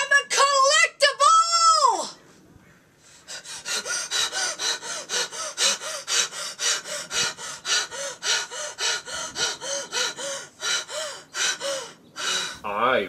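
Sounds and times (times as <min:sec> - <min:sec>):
rapid rhythmic panting: 0:03.0 - 0:12.6.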